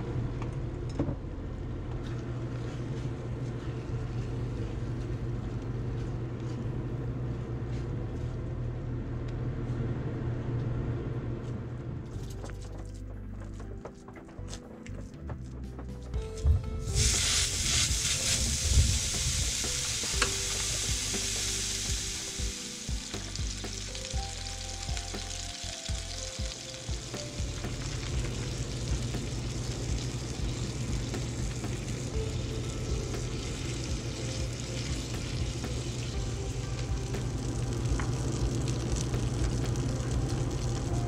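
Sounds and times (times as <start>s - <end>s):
meat sizzling on a griddle: 17.0s - 40.9s.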